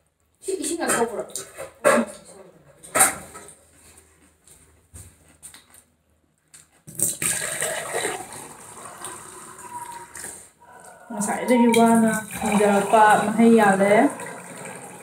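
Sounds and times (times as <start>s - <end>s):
water running steadily: 7.0s - 15.0s.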